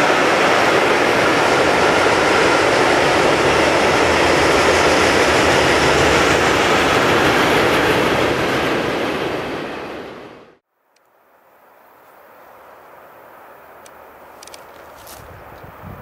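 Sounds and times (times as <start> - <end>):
freight train rolling past: 0.0 - 10.6.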